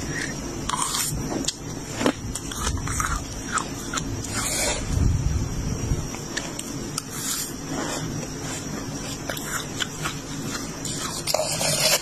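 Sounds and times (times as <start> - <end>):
frost crunching while chewed: 0.1 - 4.4.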